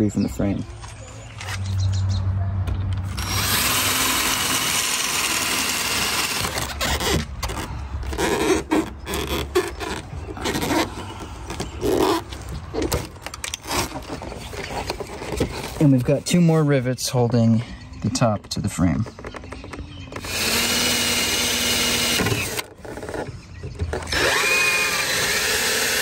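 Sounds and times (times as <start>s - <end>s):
cordless drill grinding rivet: 3.1s - 7.3s, 20.2s - 23.1s, 24.1s - 26.0s.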